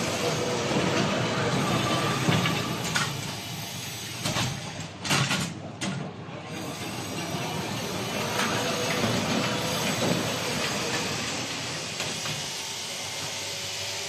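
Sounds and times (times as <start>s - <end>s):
machine running: 6.5s - 14.0s.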